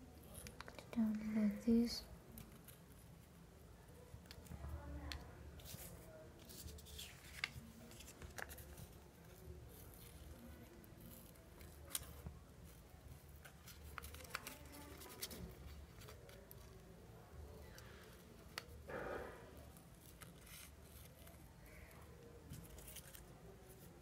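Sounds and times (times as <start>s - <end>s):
scissors cutting paper: 5.6s - 16.8s, 19.6s - 23.9s.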